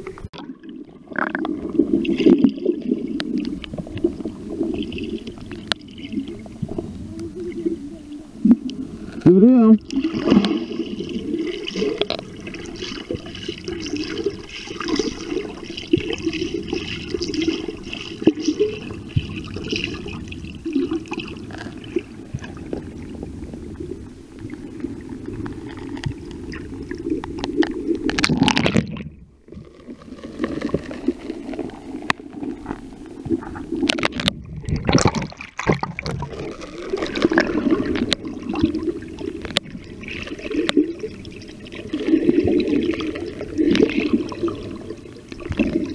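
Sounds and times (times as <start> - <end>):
muffled underwater sloshing: 0.0 - 45.9.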